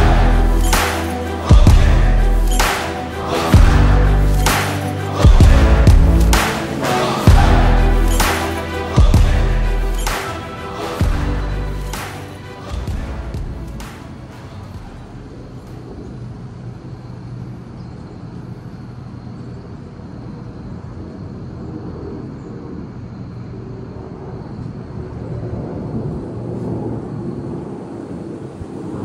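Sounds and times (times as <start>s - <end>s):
wind buffeting the microphone: 23.8s - 29.0s.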